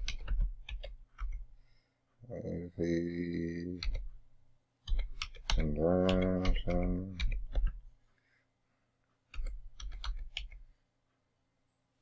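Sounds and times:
man's drawn-out wordless vocal: 0:02.2 - 0:03.9, 0:05.6 - 0:07.3
keyboard key clicks: 0:04.8 - 0:07.8.

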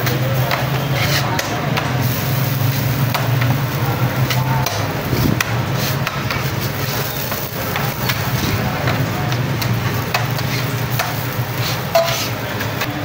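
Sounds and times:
utensils knocking on griddle: 0:00.0 - 0:13.0.

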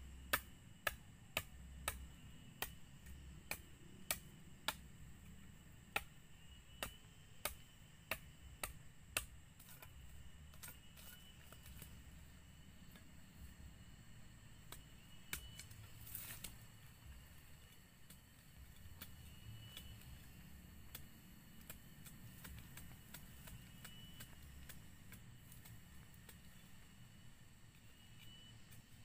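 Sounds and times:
blade chopping wooden pole: 0:21.6 - 0:26.4.

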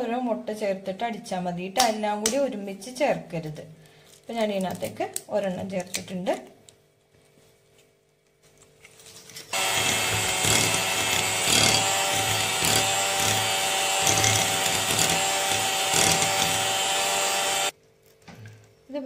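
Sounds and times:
electric hand mixer running: 0:09.5 - 0:17.8.

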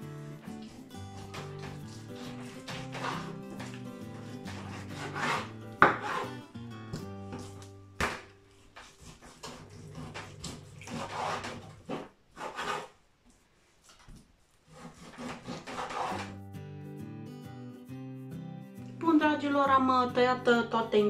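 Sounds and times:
knife slicing through raw meat: 0:00.1 - 0:06.4, 0:08.7 - 0:12.9.

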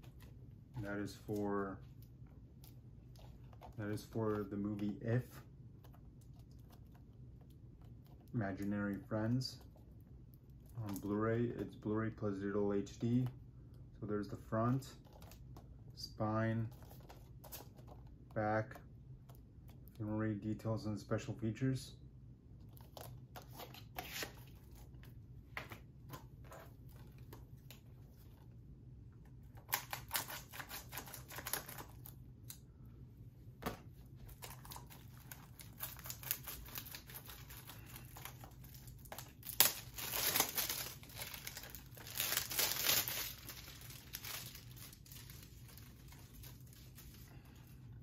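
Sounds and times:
plastic wrap crinkling: 0:34.2 - 0:47.7.

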